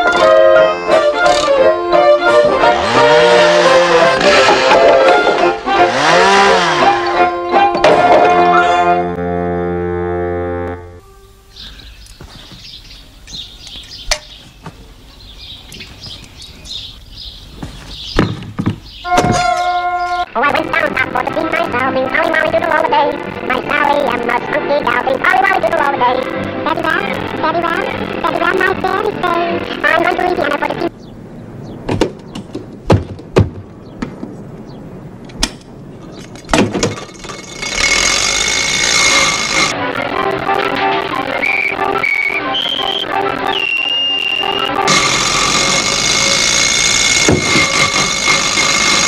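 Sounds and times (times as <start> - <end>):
birds chirping: 5.2 - 9.0, 10.6 - 36.6, 40.6 - 45.8
sharp knocks and clunks: 17.6 - 19.8, 31.8 - 34.4, 35.3 - 37.5, 47.2 - 48.4.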